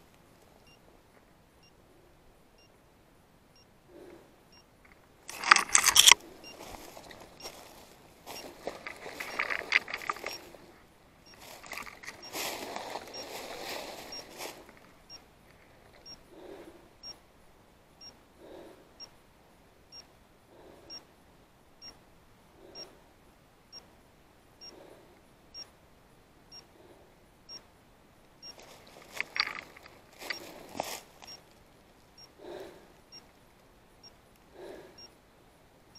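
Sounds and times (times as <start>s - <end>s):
footsteps in dry leaves: 5.3s - 10.7s, 11.3s - 14.8s, 28.6s - 31.6s.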